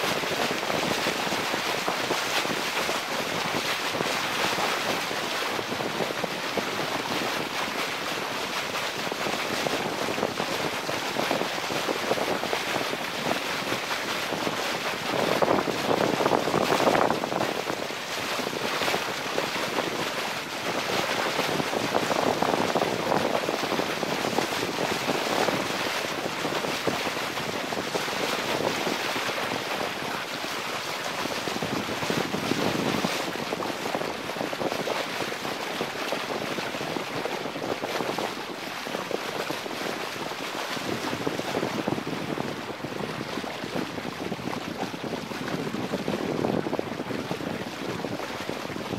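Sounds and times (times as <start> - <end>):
water rushing along a hull: 0.0 - 48.9
wind buffeting microphone: 0.0 - 48.9.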